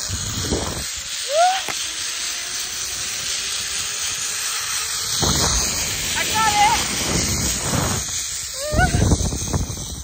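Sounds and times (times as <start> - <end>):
wind on microphone: 0.0 - 1.0, 5.1 - 10.0
pulley rushing along cable: 0.0 - 10.0.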